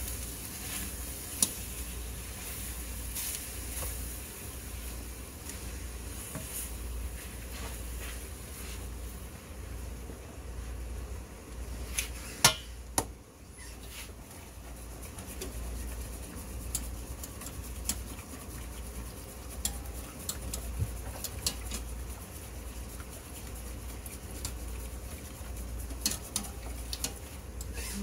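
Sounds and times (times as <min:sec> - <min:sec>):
steady low hum: 0:00.0 - 0:28.0
whisk scraping metal saucepan: 0:14.6 - 0:28.0.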